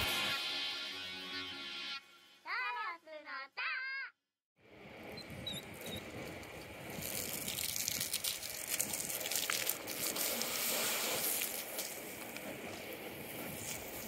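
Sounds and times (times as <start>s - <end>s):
water jetting from a hose: 5.4s - 14.0s.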